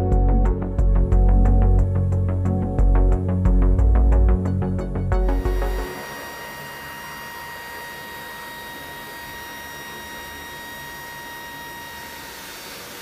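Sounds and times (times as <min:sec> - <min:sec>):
turboprop engines whining: 0:03.8 - 0:13.0.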